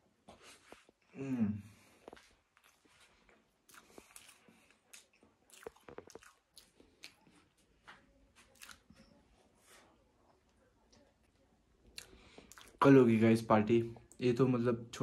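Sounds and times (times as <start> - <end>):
person chewing: 1.8 - 7.6, 8.4 - 9.1, 11.9 - 12.8.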